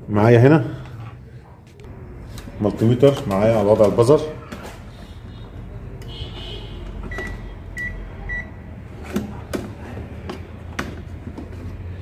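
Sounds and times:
multimeter high beeps: 7.1s - 8.6s
handling clicks and knocks: 9.0s - 12.0s.

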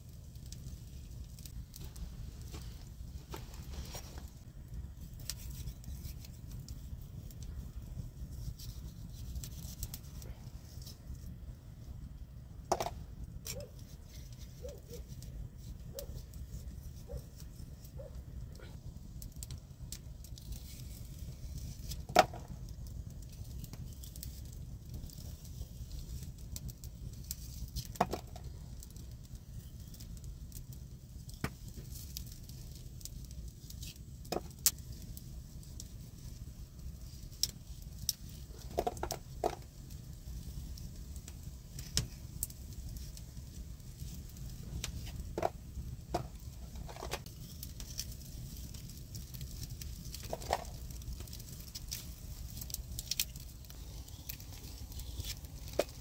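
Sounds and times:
steady low rumble: 15.3s - 21.8s.

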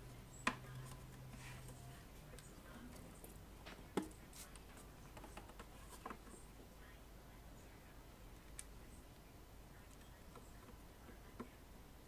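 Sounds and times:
faint rustling: 0.0s - 6.7s.

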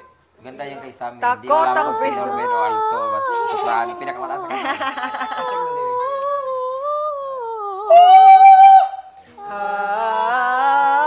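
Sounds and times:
woman singing: 1.6s - 3.7s, 5.2s - 8.2s, 9.3s - 11.0s.

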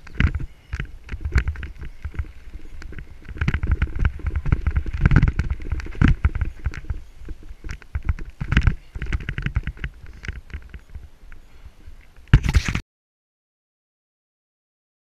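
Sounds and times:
bike rattling over bumps: 0.0s - 11.0s
wind rumble on camera: 0.0s - 12.8s.

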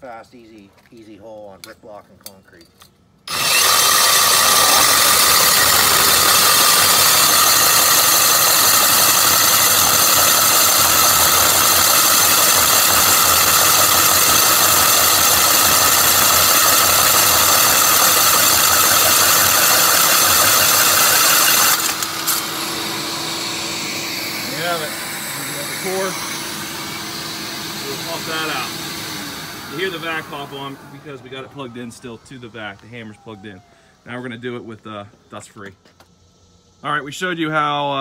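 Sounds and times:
rotary hammer drilling into concrete: 3.3s - 30.8s.

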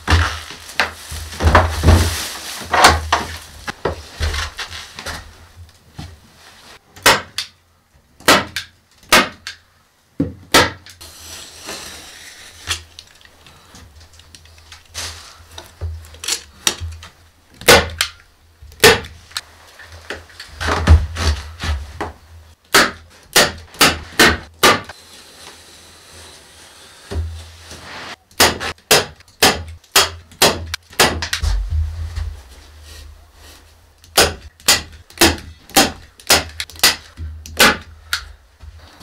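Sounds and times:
soft rustling: 31.4s - 34.0s.

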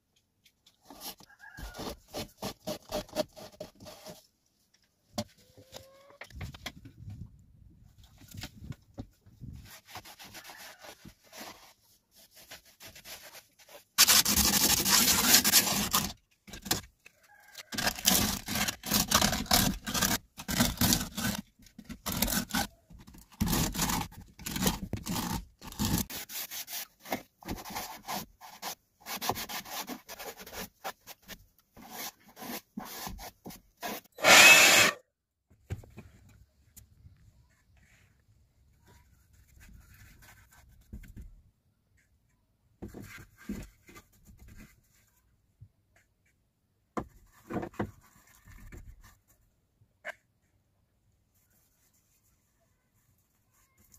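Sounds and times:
sandpaper scraping plaster: 9.5s - 16.8s, 17.7s - 35.0s.

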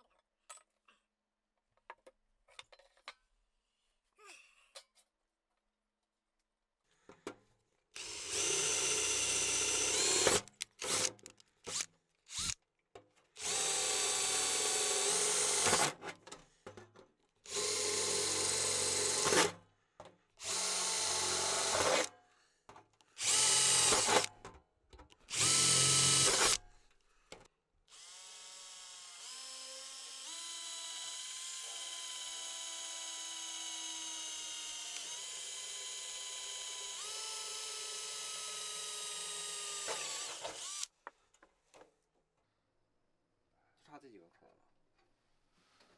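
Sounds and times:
cordless drill running: 8.0s - 12.6s, 13.4s - 15.9s, 17.4s - 19.4s, 20.4s - 22.1s, 23.2s - 24.3s, 25.3s - 26.6s, 27.9s - 40.9s.

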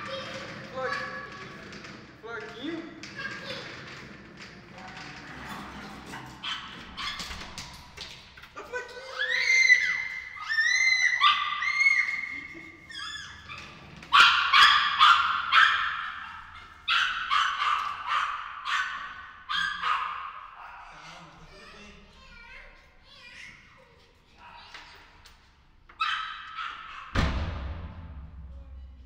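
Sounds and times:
small dog yapping: 6.4s - 7.3s, 9.2s - 13.5s, 14.1s - 21.0s, 26.0s - 27.2s.

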